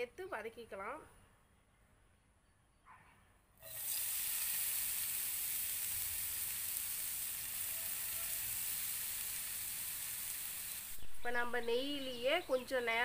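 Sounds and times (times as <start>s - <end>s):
carrots sizzling in a frying pan: 3.6s - 12.2s.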